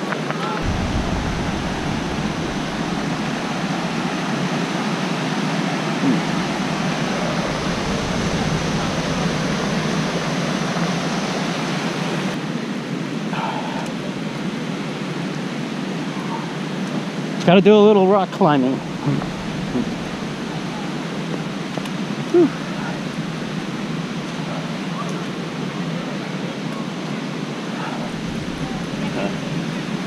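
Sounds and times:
waterfall rushing: 0.6s - 30.0s.

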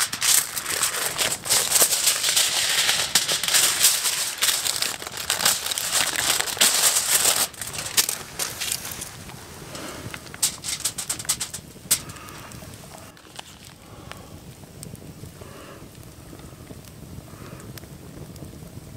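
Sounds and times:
aluminium foil crinkling: 0.0s - 14.3s.

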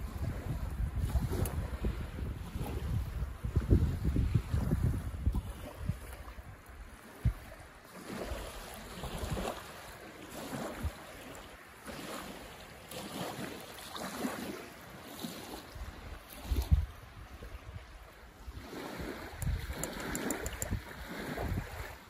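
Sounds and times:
wind gusting: 0.0s - 6.1s
wind buffeting microphone: 0.0s - 11.3s, 15.4s - 22.0s
waves lapping on sandy shore: 0.0s - 22.0s.

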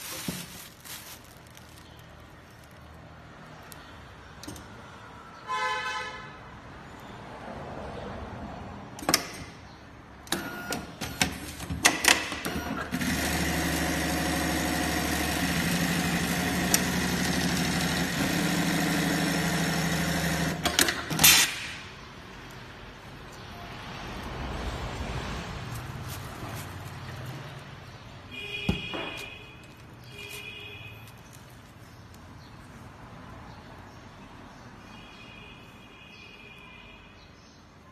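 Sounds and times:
sewing machine sewing: 12.5s - 21.0s.

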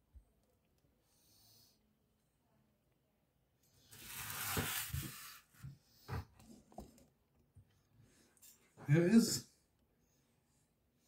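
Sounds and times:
foam box rustling: 3.9s - 5.4s.

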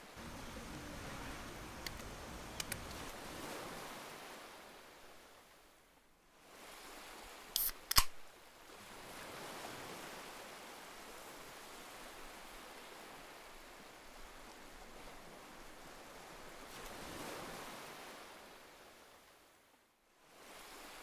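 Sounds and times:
soft rushing outdoor ambience: 0.0s - 9.0s
sharp clicks: 1.8s - 3.1s, 7.6s - 8.2s.

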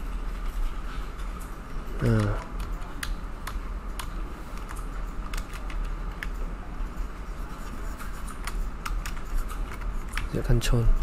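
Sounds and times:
steady low hum and hiss: 0.0s - 11.0s
computer keyboard clicks: 1.9s - 6.4s, 8.0s - 10.4s
computer mouse clicks: 2.0s - 6.4s, 7.6s - 10.3s.

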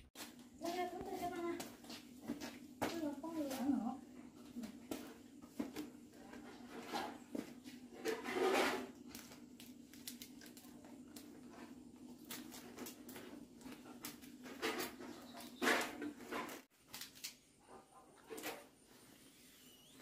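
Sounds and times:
leaves rustling and crinkling: 6.3s - 17.5s.

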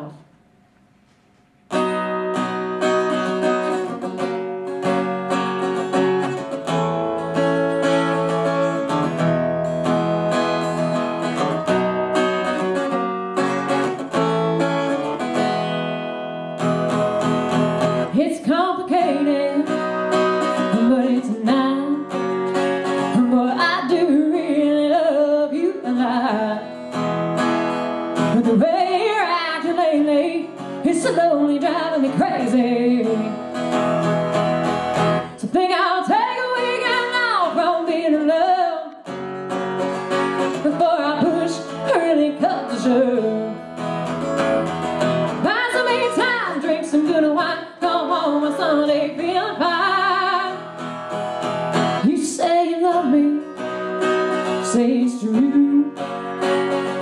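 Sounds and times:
acoustic guitar playing: 0.0s - 57.0s
woman singing: 18.0s - 26.8s, 28.2s - 33.6s, 35.3s - 39.0s, 40.5s - 43.8s, 45.3s - 50.8s, 51.9s - 57.0s.

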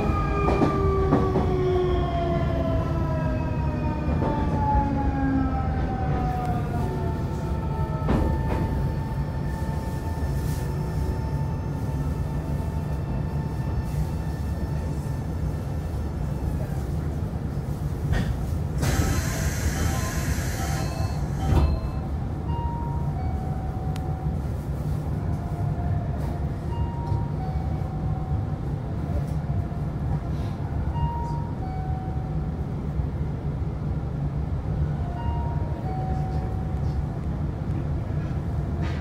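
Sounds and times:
train rumbling: 0.0s - 39.0s.

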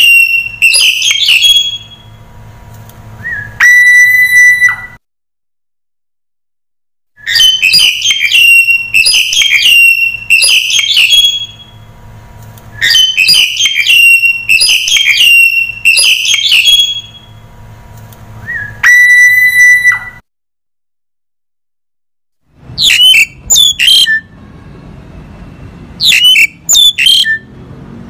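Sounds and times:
starling singing harsh whistles: 0.0s - 2.1s, 3.2s - 5.0s, 7.2s - 11.8s, 12.8s - 17.4s, 18.4s - 20.2s, 22.8s - 24.4s, 26.0s - 27.5s.

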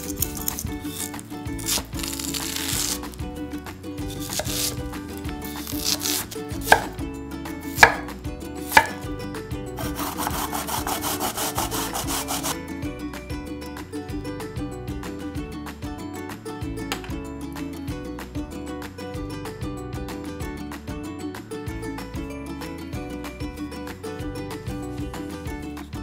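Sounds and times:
knife slicing yam: 0.0s - 3.2s, 4.0s - 7.0s, 7.6s - 9.1s, 9.8s - 12.6s
knife knocking on cutting board: 6.6s - 7.0s, 7.8s - 8.1s, 8.7s - 9.0s.

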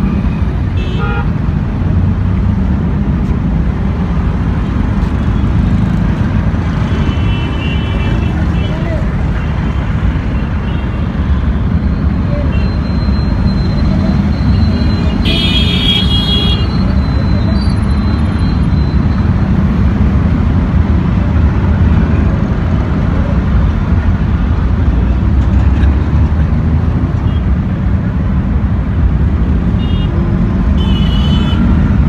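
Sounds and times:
road traffic rumble: 0.0s - 32.0s
vehicle horn honking: 15.1s - 16.8s, 30.8s - 31.7s.

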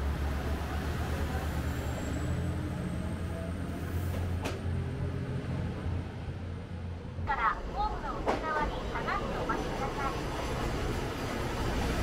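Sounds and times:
train wheel noise: 7.6s - 12.0s.

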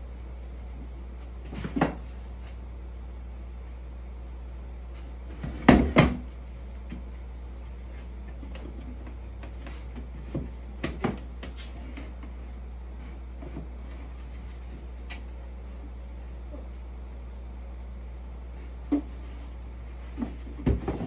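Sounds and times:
steady low hum: 0.0s - 21.0s
knocks and clunks of box panels: 5.3s - 6.3s, 20.1s - 21.0s.

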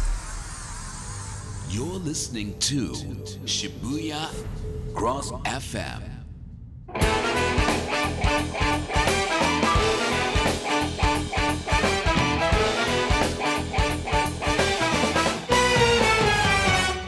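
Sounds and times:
upbeat swing music: 7.0s - 17.0s.

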